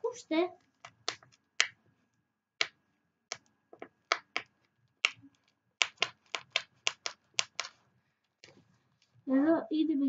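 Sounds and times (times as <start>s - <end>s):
puffy stickers clicking: 4.1s - 8.6s.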